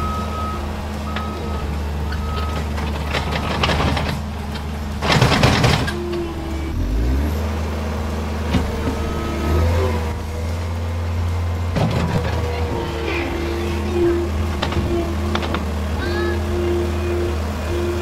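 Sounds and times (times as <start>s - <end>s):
reversing alarm beeps: 0.0s - 2.6s
diesel engine running: 0.0s - 18.0s.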